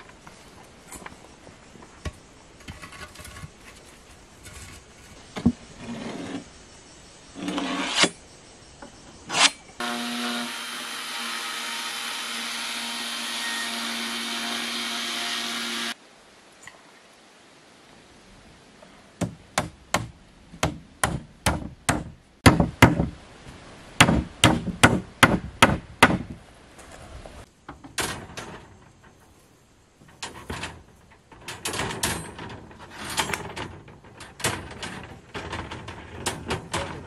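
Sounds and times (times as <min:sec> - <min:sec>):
steel mesh rattling: 0:30.0 - 0:37.0.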